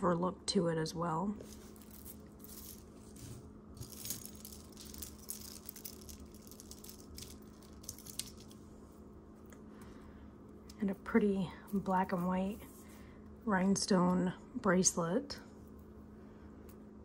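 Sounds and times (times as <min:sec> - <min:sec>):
metal jewelry clinking: 0:01.4 - 0:08.5.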